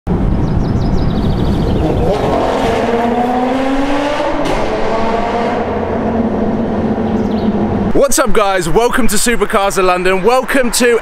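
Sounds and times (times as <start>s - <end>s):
car engine revving: 1.5s - 8.0s.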